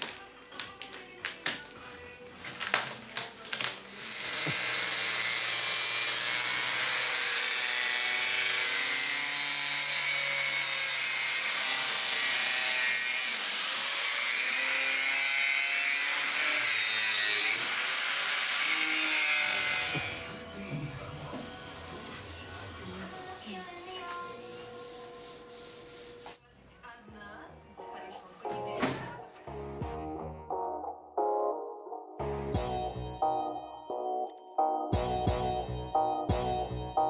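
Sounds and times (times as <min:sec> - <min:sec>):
angle grinder cutting fibreglass: 0:03.9 - 0:20.6.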